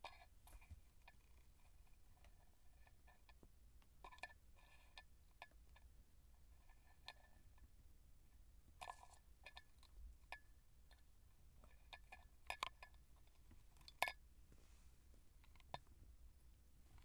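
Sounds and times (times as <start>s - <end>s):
toy balls clicking and tapping: 11.8s - 13.0s, 13.8s - 14.2s.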